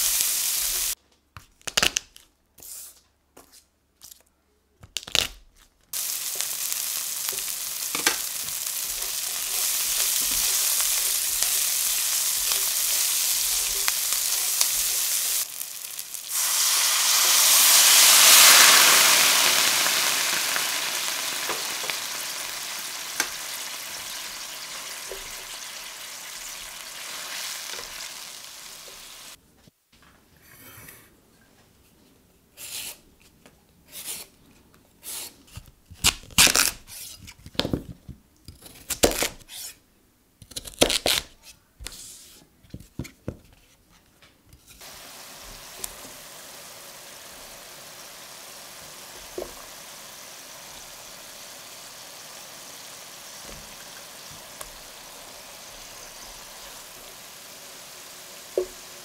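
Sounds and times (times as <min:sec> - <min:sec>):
shallot and garlic sizzling in oil: 0:00.0 - 0:01.0, 0:05.9 - 0:29.4, 0:44.6 - 0:59.0
wine hissing in hot pan: 0:00.0 - 0:01.0, 0:06.0 - 0:29.4, 0:44.8 - 0:59.0
sweet potato peeling strokes: 0:32.5 - 0:33.1, 0:33.8 - 0:34.4, 0:35.0 - 0:37.3.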